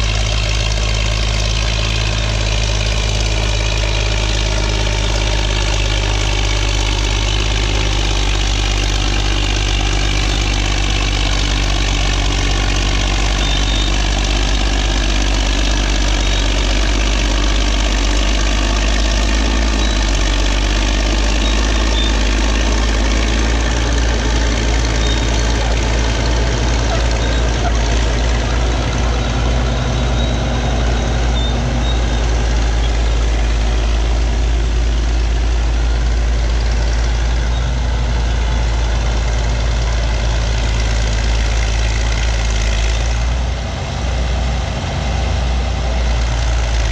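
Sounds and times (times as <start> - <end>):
dozer diesel engine under load: 0.0 - 46.9
other dozers working: 0.0 - 46.9.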